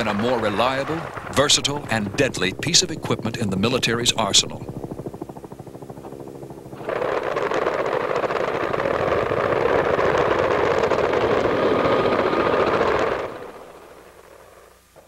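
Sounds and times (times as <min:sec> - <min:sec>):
rapid automatic gunfire: 0:06.8 - 0:14.0.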